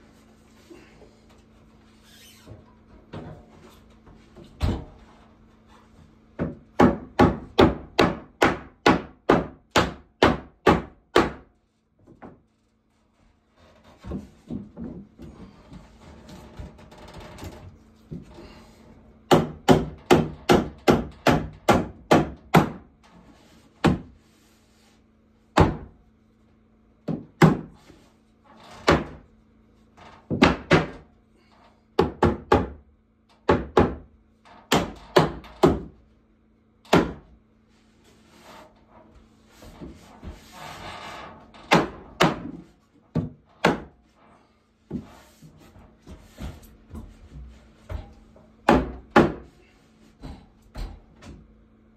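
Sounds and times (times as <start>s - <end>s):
hammer knocking on wooden ceiling: 6.4s - 12.4s, 19.3s - 22.9s, 25.6s - 26.0s, 27.0s - 27.8s, 28.8s - 29.2s, 30.3s - 31.1s, 32.0s - 32.8s, 33.4s - 34.1s, 34.7s - 36.0s, 36.9s - 37.3s, 41.6s - 44.0s, 47.9s - 49.5s.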